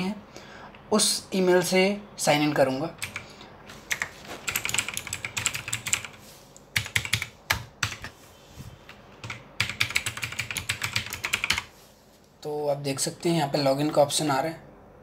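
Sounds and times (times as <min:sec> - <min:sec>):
keyboard typing clicks: 0:03.0 - 0:03.3, 0:03.9 - 0:06.1, 0:06.8 - 0:08.1, 0:09.2 - 0:11.7.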